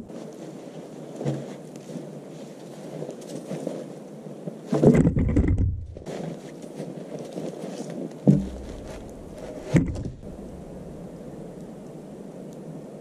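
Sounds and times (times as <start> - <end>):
wooden logs knocking: 4.8 - 6.1, 8.3 - 10.6
steady low background noise: 8.1 - 13.0.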